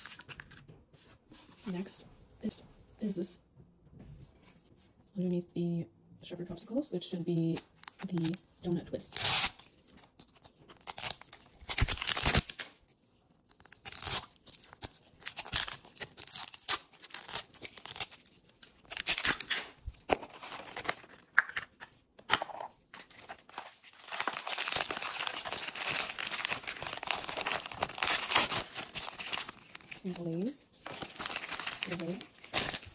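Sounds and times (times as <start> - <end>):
plastic wrapper ripping: 10.8 - 12.7, 13.5 - 19.8, 23.5 - 32.9
plastic packet crinkling: 23.5 - 32.9.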